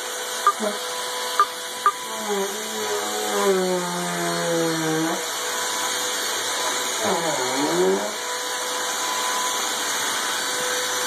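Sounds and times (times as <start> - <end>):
vacuum cleaner whine: 0.0 - 11.0.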